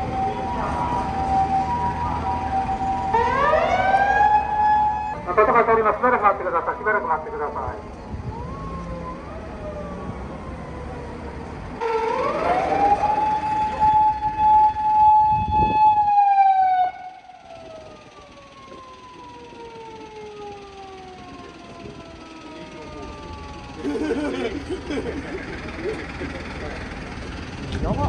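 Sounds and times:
fainter siren: 0:00.0 - 0:24.2
emergency siren wailing: 0:00.0 - 0:24.7.

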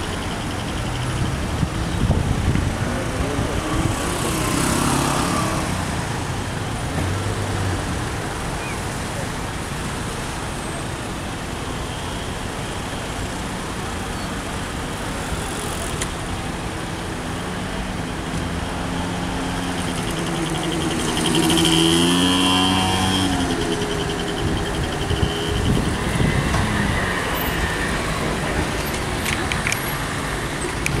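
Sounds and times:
traffic engine and tyre rumble: 0:00.0 - 0:31.0
vehicle engine passing close: 0:18.8 - 0:30.2.

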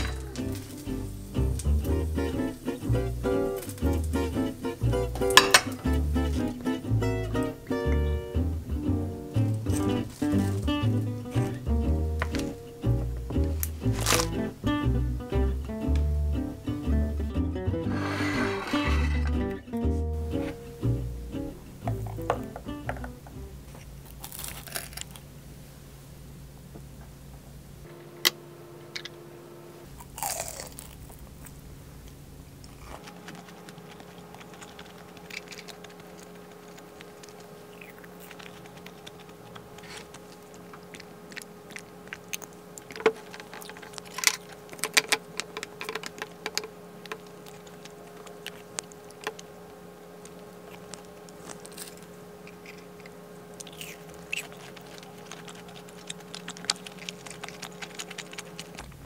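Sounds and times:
cutlery clinking on dishes: 0:05.3 - 0:05.8
chewing and biting food: 0:23.7 - 0:25.3, 0:29.9 - 0:31.6, 0:32.6 - 0:49.6, 0:50.2 - 0:59.0.

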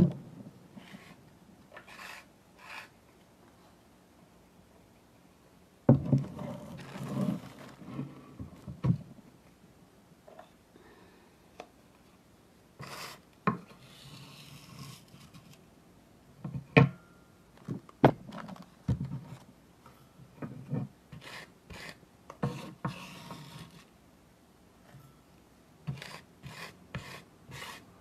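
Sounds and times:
gritty scraping in bowl: 0:01.8 - 0:03.0, 0:06.3 - 0:08.2, 0:20.6 - 0:23.9, 0:25.9 - 0:27.8.

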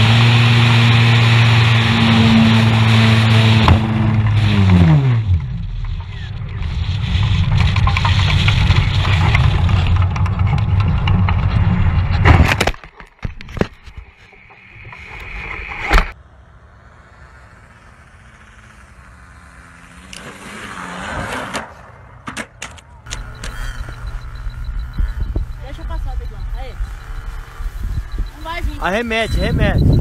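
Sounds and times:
model plane motor running: 0:00.0 - 0:03.8, 0:23.1 - 0:29.6
rough rumbling: 0:00.0 - 0:16.2, 0:23.0 - 0:30.0.

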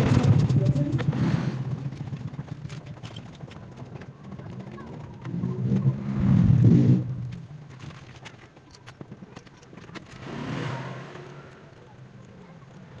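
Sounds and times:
vehicle engine passing by: 0:10.2 - 0:11.9.

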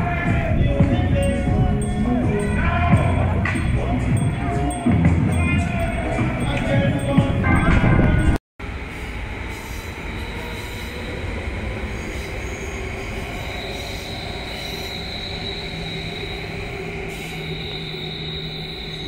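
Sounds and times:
train rumble: 0:00.0 - 0:19.0
high wheel squeal: 0:08.9 - 0:19.0.

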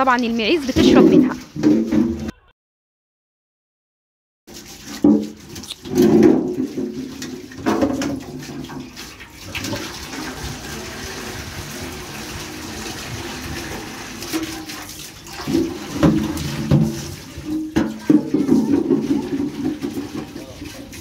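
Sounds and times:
water pouring into metal basin: 0:00.0 - 0:02.3, 0:04.5 - 0:21.0
metal basin clanking: 0:00.0 - 0:02.5, 0:04.5 - 0:21.0
brush scrubbing: 0:04.5 - 0:21.0.

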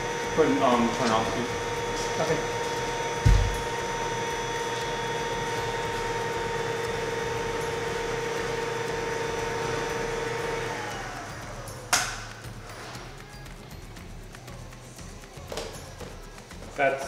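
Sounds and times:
blower motor whine: 0:00.0 - 0:13.5
sharp knock: 0:03.2 - 0:03.6.

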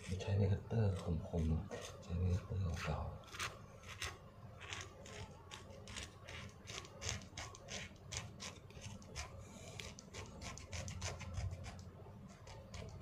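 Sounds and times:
blade scraping skin: 0:02.7 - 0:13.0.

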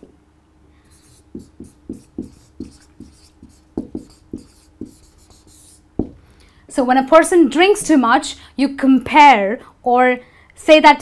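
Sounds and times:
marker writing on whiteboard: 0:00.9 - 0:06.2.

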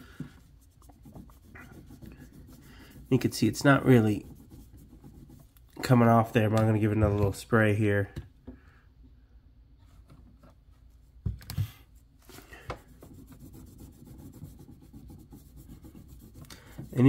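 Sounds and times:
cloth rubbing metal panel: 0:12.9 - 0:17.0.

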